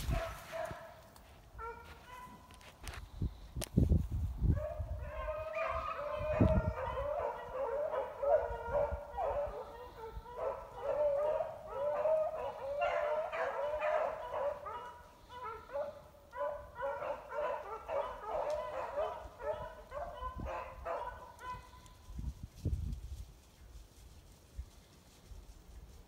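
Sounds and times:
hounds baying: 0.0s - 1.0s, 4.6s - 21.9s.

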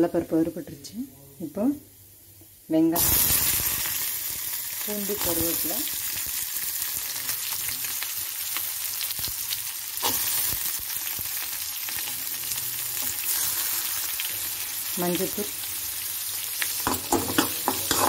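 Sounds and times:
food sizzling in hot oil: 2.7s - 18.0s
spoon scraping a pan: 16.8s - 18.0s.

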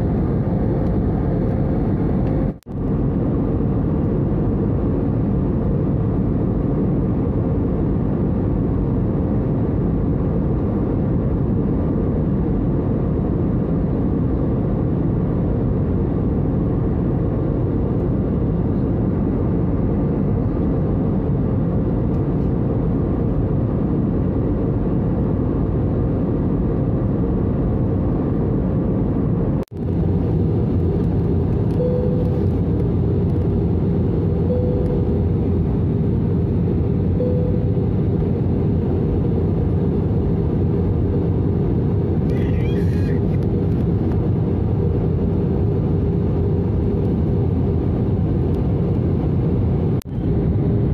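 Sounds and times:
jet engine and airflow rumble: 0.0s - 50.9s
faint steady hum: 29.8s - 43.8s.

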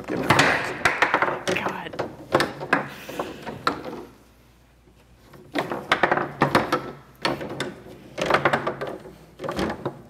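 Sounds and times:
foosball ball knocks: 0.1s - 4.0s.

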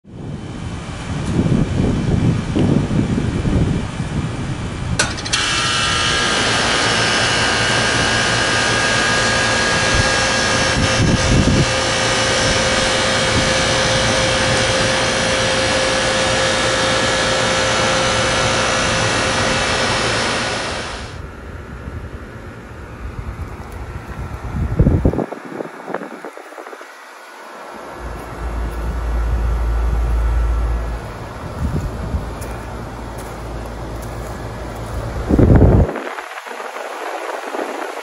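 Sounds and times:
air conditioner running: 0.1s - 38.0s
air conditioner switch click: 5.0s - 5.8s.

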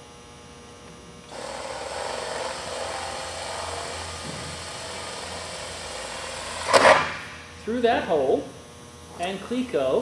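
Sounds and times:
power drill boring sheet metal: 1.3s - 6.8s.

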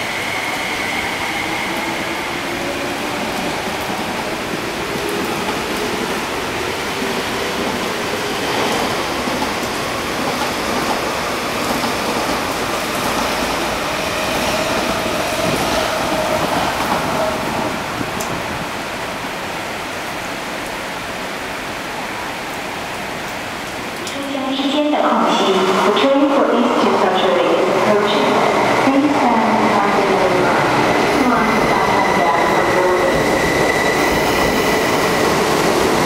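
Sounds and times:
electric train running on tracks: 0.0s - 20.8s, 23.6s - 36.0s
steady rain hiss: 16.4s - 25.4s.

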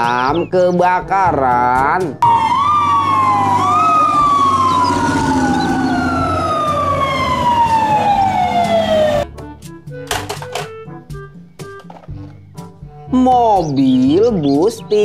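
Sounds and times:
fire truck siren wailing: 2.2s - 9.3s
second siren rising: 2.2s - 9.3s.

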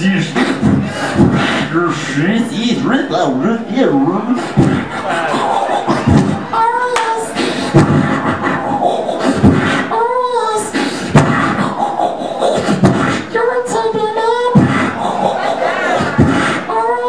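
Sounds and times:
beatboxing kick and snare: 0.0s - 1.9s, 4.5s - 6.4s, 7.0s - 9.9s, 10.7s - 13.3s, 14.5s - 16.7s.

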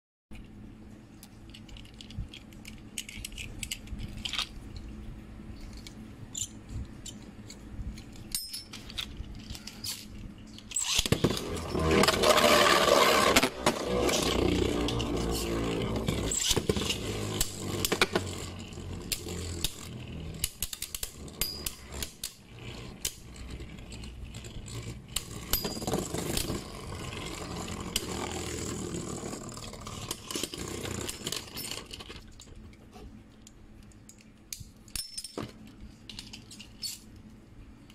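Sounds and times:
spinning tops launched with whir: 10.7s - 32.0s
spinning tops grinding on plastic: 10.7s - 32.4s.

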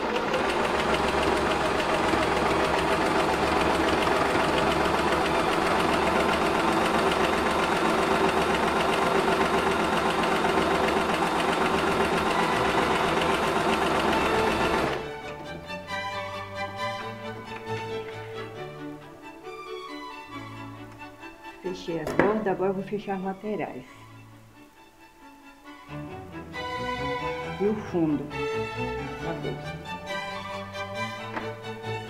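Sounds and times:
electric sewing machine running: 0.0s - 18.5s.

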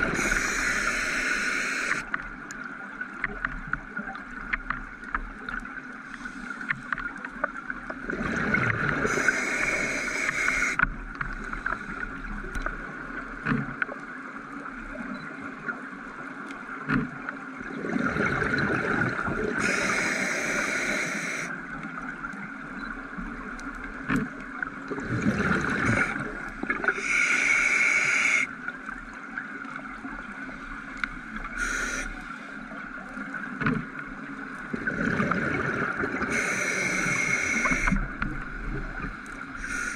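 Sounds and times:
underwater hum: 0.0s - 39.9s
diver breathing through regulator: 0.1s - 2.0s, 9.0s - 10.8s, 19.6s - 21.5s, 26.9s - 28.5s, 31.6s - 32.3s, 36.2s - 38.0s, 39.6s - 39.9s
faint clicks: 0.2s - 8.0s, 9.2s - 14.2s, 25.8s - 32.3s, 36.3s - 39.9s.

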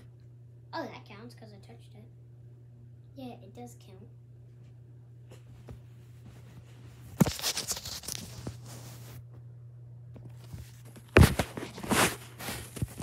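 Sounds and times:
steady low hum: 0.0s - 13.0s
bedding rustling: 5.4s - 9.2s, 10.4s - 13.0s.

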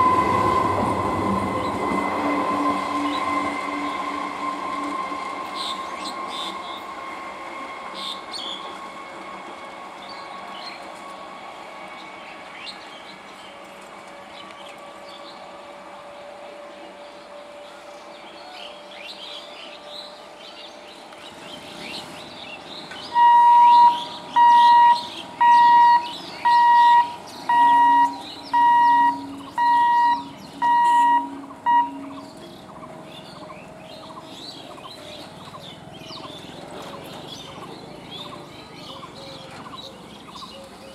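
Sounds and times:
birds chirping: 21.0s - 40.9s
electronic warning beeps: 23.2s - 32.2s.

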